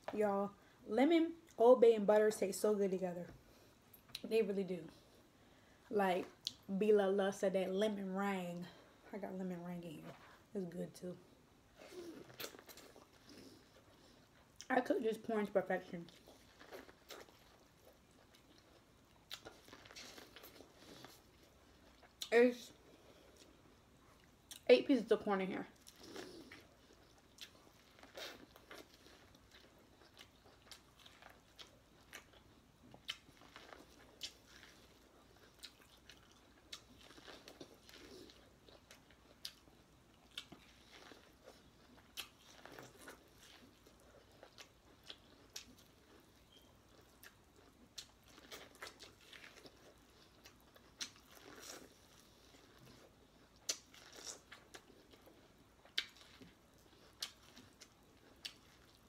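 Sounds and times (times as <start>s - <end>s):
chewing corn on the cob: 11.7s - 24.7s, 25.7s - 59.0s.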